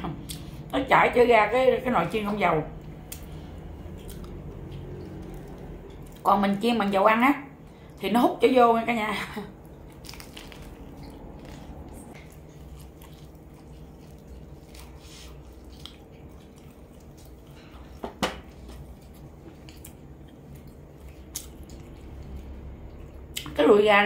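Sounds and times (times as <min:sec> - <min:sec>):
low steady hum: 0:00.0 - 0:24.0
chewing fried chicken: 0:02.8 - 0:06.7, 0:09.3 - 0:23.6.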